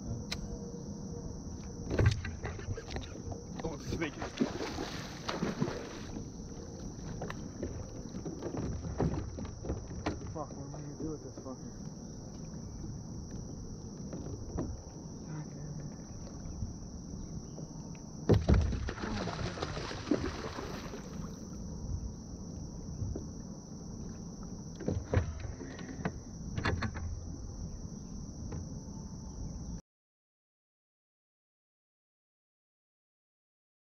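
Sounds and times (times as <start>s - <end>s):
churning water: 2.1s - 11.6s, 18.3s - 21.4s
fish splashing at surface: 18.5s - 21.2s.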